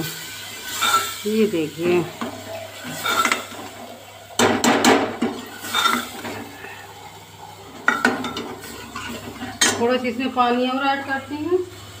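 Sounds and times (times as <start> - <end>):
metal ladle scraping a pot: 0.6 - 1.2, 2.8 - 3.6, 5.4 - 6.8, 7.8 - 9.8
ladle knocks on pot: 4.4 - 5.4.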